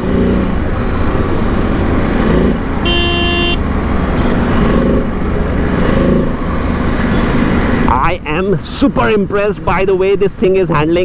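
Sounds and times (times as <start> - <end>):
road and wind rumble: 0.0 - 11.0
vehicle horn honk: 2.8 - 3.6.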